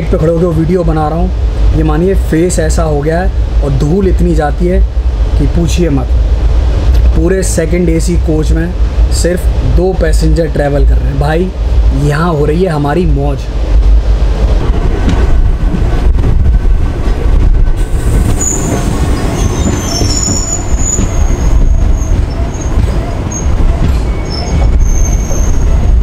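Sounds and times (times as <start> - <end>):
train rumbling along rails: 0.0 - 26.0
wind buffeting microphone: 1.3 - 26.0
high wheel squeals: 18.4 - 26.0.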